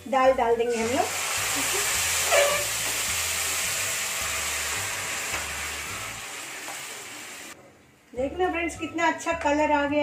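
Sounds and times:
liquid sizzling in hot oil: 0.6 - 7.6.

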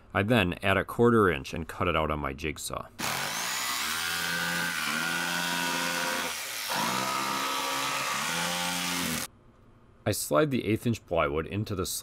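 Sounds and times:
jigsaw cutting plywood: 3.0 - 9.3.

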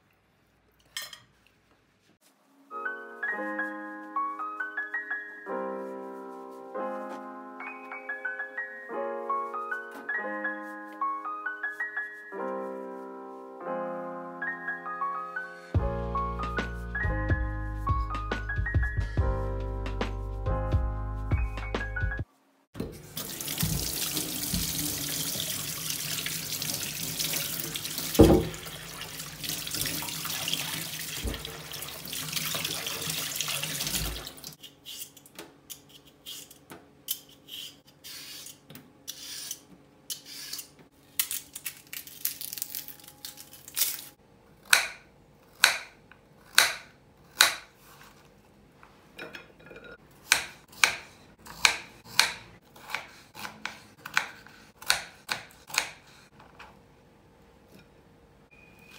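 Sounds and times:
tap water running into sink: 23.1 - 34.6
loud knock: 28.2 - 28.6
potato peeler scraping: 34.6 - 41.3.

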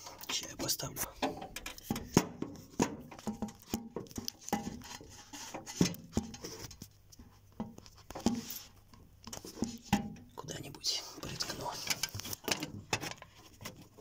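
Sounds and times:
clicks and taps of handling parts: 0.0 - 10.3.

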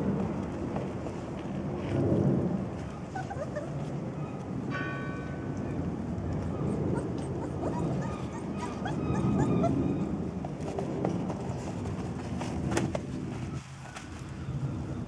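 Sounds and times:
puppies whimpering and yipping: 3.1 - 4.4, 6.4 - 10.3.

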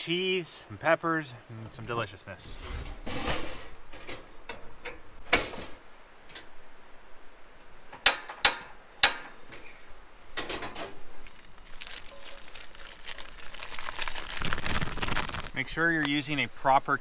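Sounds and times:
camp stove being handled: 1.9 - 6.6, 7.8 - 11.6.

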